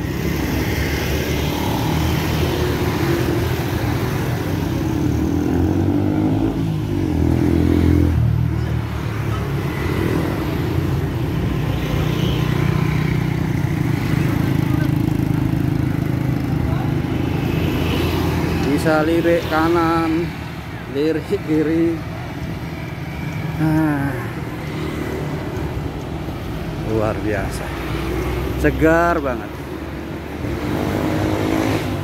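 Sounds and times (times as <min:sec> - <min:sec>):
low rumble of traffic: 0:00.0 - 0:32.0
scooter engines: 0:00.0 - 0:32.0
motorcycle engine revving: 0:00.1 - 0:08.6, 0:29.7 - 0:32.0.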